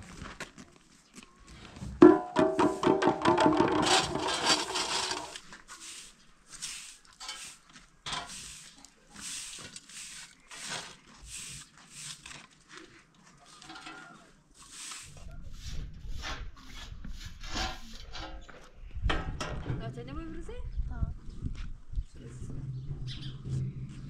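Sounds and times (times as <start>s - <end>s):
broom sweeping dirt: 1.7s - 18.3s.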